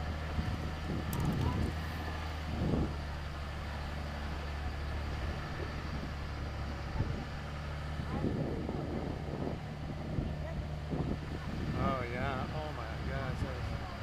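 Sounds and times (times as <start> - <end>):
vehicle engine humming: 0.0 - 14.0
vehicle thumps over rough ground: 0.8 - 3.0.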